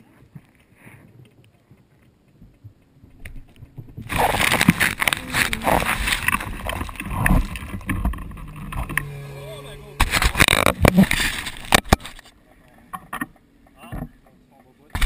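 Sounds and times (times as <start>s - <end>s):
rustling against microphone: 3.2s - 12.9s.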